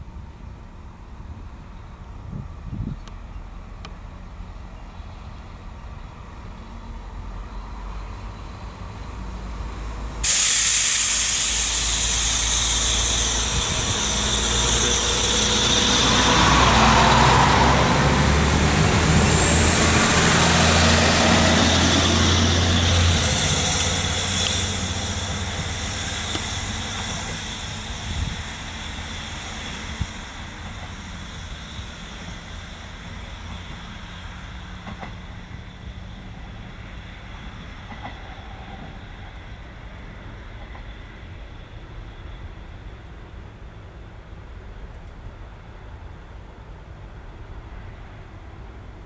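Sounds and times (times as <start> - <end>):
diesel railcar engine passing: 0.0 - 49.0
loud hiss: 10.2 - 37.4.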